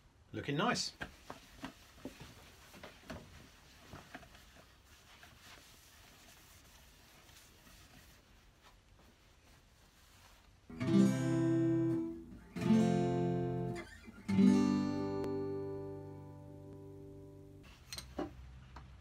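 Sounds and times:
guitar chords strummed: 10.7 - 17.6.

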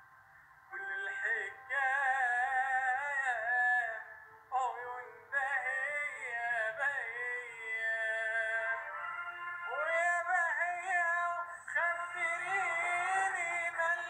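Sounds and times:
person singing unaccompanied: 0.7 - 14.0.

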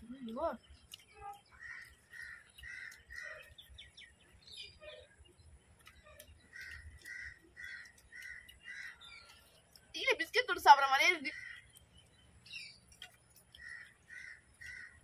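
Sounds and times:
faint crow cawing: 1.5 - 3.5, 6.5 - 9.2, 11.3 - 11.7, 13.6 - 15.0.

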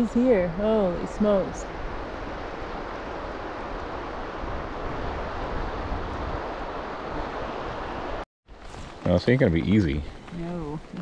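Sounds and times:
river water rushing: 0.9 - 9.0.

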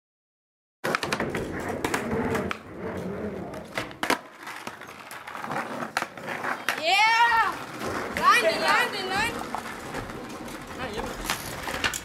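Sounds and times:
skateboard clacks: 0.8 - 12.0
skateboard wheels rolling on paving: 0.8 - 12.0.

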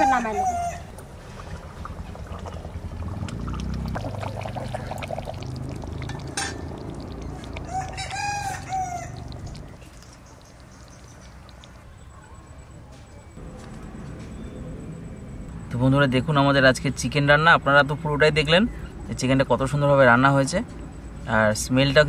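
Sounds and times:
rooster crowing: 0.0 - 0.9, 7.5 - 9.4
low rumble: 1.0 - 7.8.

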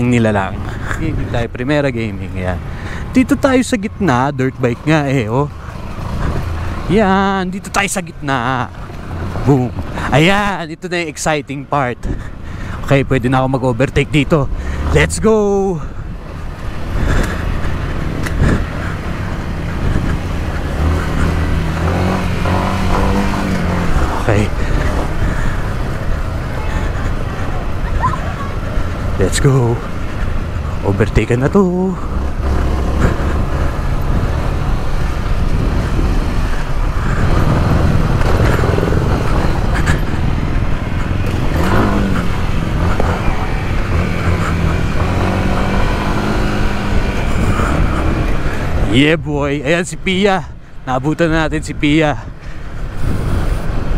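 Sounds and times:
dirt bike engine revving: 16.6 - 30.9, 31.6 - 49.0.

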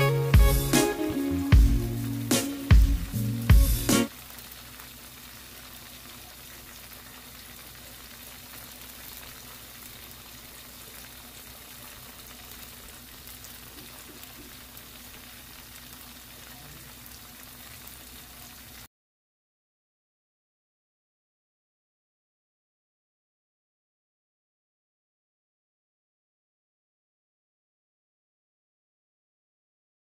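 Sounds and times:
fish sizzling in hot oil: 0.0 - 18.9.

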